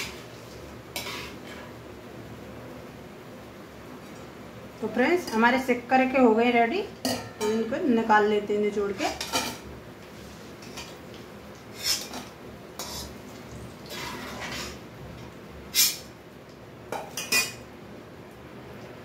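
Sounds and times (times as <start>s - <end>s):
metal spoon scraping a wok: 0.9s - 1.6s, 11.7s - 13.2s, 13.8s - 14.8s.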